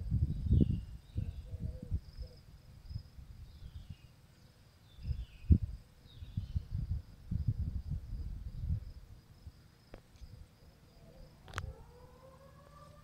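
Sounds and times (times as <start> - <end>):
wind rumbling on microphone: 0.0 - 4.1, 4.9 - 13.0
bird chirps: 3.4 - 6.7
distant siren tone: 11.0 - 13.0.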